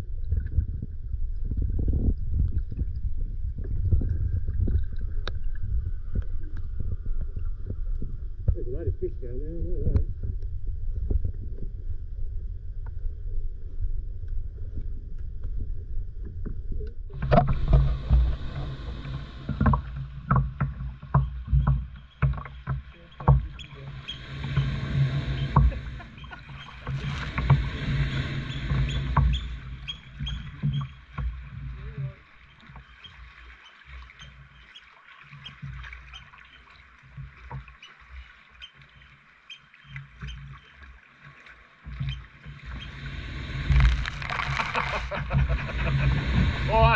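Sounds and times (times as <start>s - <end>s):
muffled underwater rumble: 0.0s - 39.1s, 41.8s - 46.9s
water lapping against hull: 0.0s - 46.9s
paddle strokes splashing: 17.2s - 46.9s.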